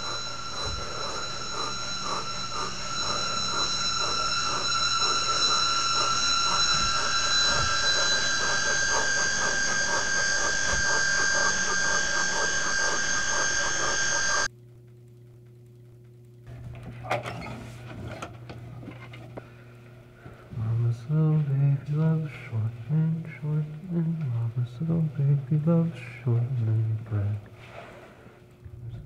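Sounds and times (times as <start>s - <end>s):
high ringing tones drone: 0.0s - 14.5s
rapid even pulsing: 0.0s - 14.5s
low hum: 0.0s - 16.6s.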